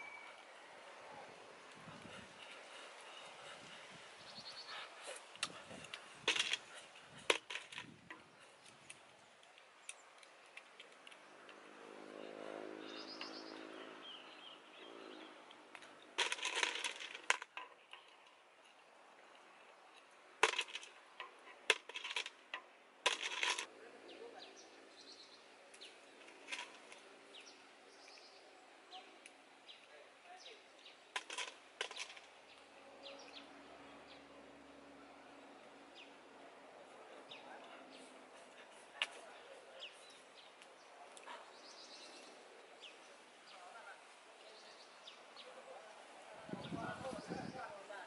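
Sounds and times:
clam shells clicking and scraping: 0:05.2 - 0:09.0, 0:15.8 - 0:18.8, 0:19.7 - 0:23.7, 0:31.2 - 0:32.3.

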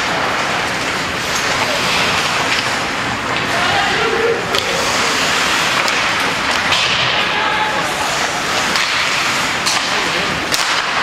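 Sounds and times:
hockey sticks and puck cracking: 0:00.0 - 0:11.0
arena crowd voices: 0:03.4 - 0:05.2, 0:07.0 - 0:08.8.

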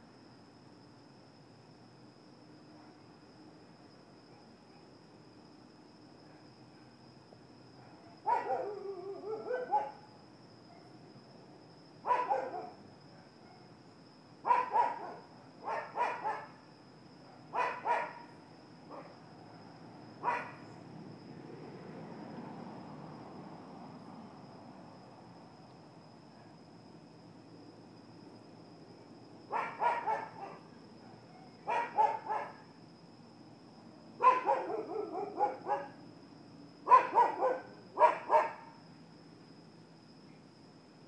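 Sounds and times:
dog barking: 0:07.8 - 0:10.1, 0:12.0 - 0:13.7, 0:14.4 - 0:16.6, 0:17.3 - 0:18.3, 0:18.9 - 0:19.1, 0:20.2 - 0:20.6, 0:29.5 - 0:32.6, 0:34.2 - 0:36.0, 0:36.8 - 0:38.8.

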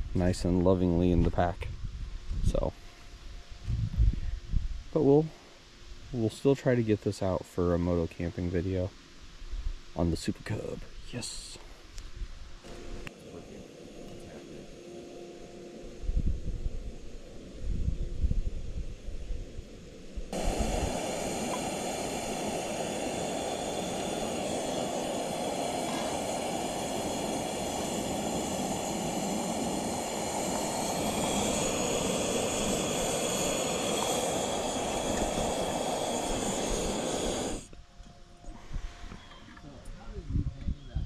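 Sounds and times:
gas burner hissing: 0:10.0 - 0:11.8, 0:12.6 - 0:37.7.

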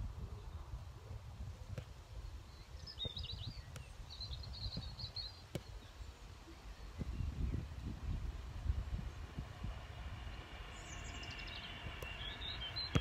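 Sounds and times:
wind rumbling on microphone: 0:00.0 - 0:13.0
small bird twittering: 0:02.5 - 0:07.8, 0:10.2 - 0:13.0.

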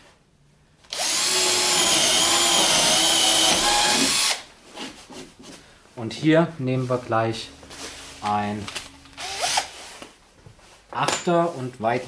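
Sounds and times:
cordless drill boring through board: 0:00.9 - 0:04.5, 0:09.2 - 0:09.7.

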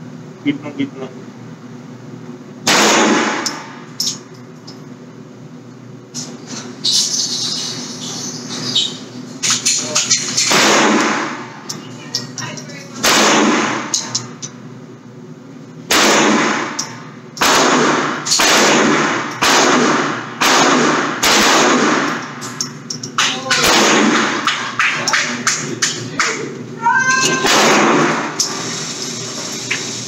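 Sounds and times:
gunshots: 0:02.7 - 0:03.5, 0:10.5 - 0:11.5, 0:13.0 - 0:13.9, 0:15.9 - 0:16.8, 0:17.4 - 0:22.2, 0:23.6 - 0:24.7, 0:27.4 - 0:28.4.

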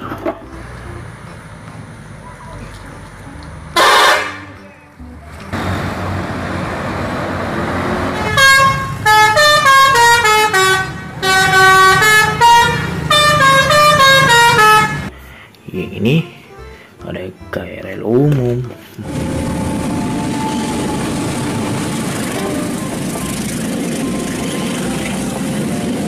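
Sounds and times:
musical bus horn tune: 0:00.0 - 0:16.9, 0:19.0 - 0:26.0
short horn blast: 0:03.7 - 0:05.8, 0:08.0 - 0:15.2, 0:19.0 - 0:26.0
steady rush of noise: 0:19.0 - 0:26.0.

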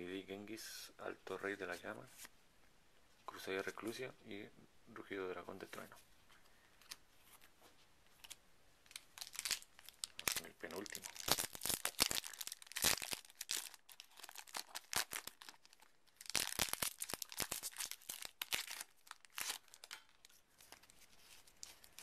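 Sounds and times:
foil wrapper tearing and crinkling: 0:08.2 - 0:20.9.

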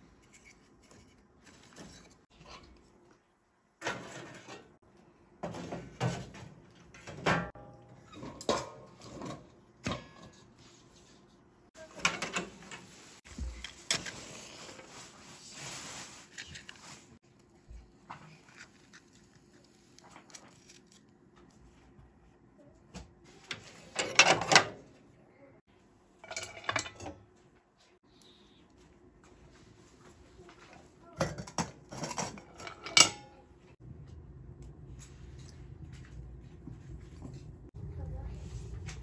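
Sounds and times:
rustling: 0:12.7 - 0:17.2.

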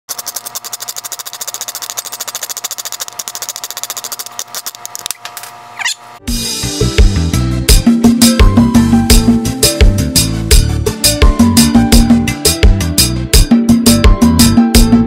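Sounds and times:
rapid mechanical clatter: 0:00.1 - 0:05.2
music with guitar and drums: 0:06.3 - 0:15.0.

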